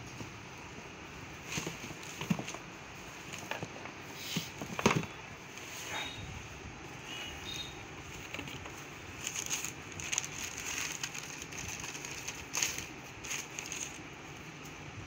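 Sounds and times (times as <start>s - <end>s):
wrapping paper rustling: 8.1s - 14.0s.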